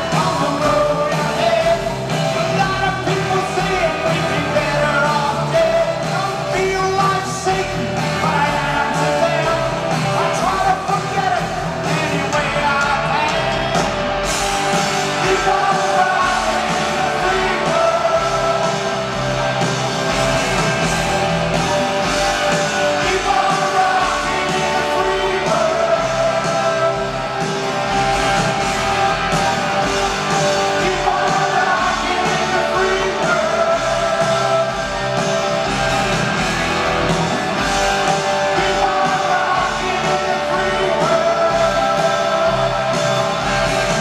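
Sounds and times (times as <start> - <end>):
man singing: 0.0 - 13.9, 15.1 - 19.0, 22.7 - 27.4, 30.4 - 35.0, 38.1 - 43.2
live rock band playing: 0.0 - 44.0.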